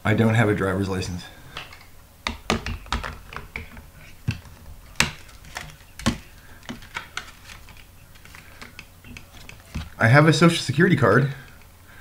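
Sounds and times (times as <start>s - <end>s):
sharp clicks and taps: 1.6s - 9.9s.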